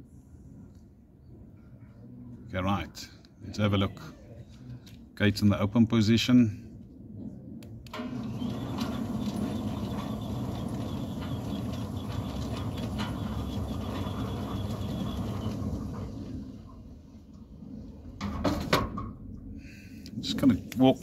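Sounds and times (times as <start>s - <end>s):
gate motor clicks: 7.9s - 16.8s
sliding gate motor humming: 7.9s - 17.2s.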